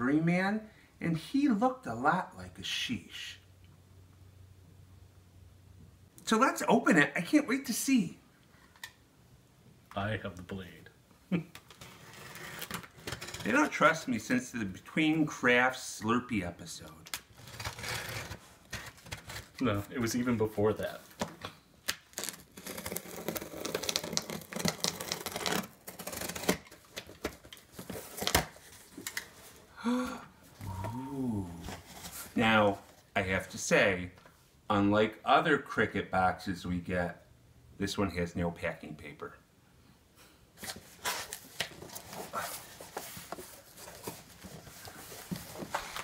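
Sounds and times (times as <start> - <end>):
cardboard rustling and scraping: 17.4 - 21.4, 22.1 - 29.6, 31.5 - 33.1, 40.6 - 46.0
box cutter slicing tape: 22.1 - 26.9
cardboard flaps rustling: 40.6 - 46.0.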